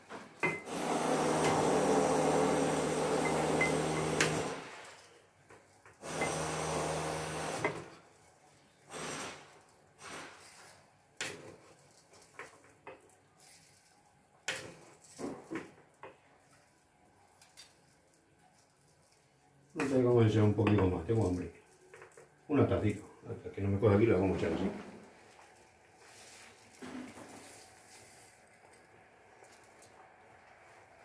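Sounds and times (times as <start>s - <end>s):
plastic scoop scooping dry rice: 24.2s - 29.9s.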